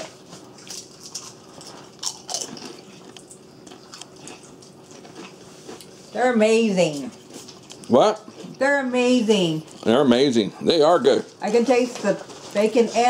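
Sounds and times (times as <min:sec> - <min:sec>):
chewing potato chips: 0:00.0 - 0:06.2, 0:07.0 - 0:08.6, 0:09.6 - 0:10.5.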